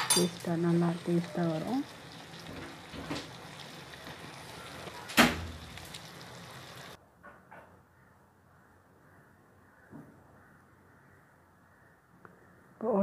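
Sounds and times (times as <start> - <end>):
chicken and onions sizzling in oil: 0.0 - 7.0.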